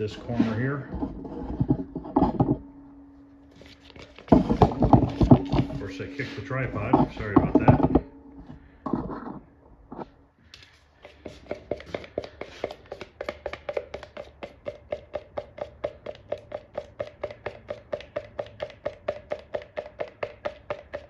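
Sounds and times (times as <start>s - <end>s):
stir stick knocking plastic cup: 3.9s - 8.1s, 11.0s - 21.0s.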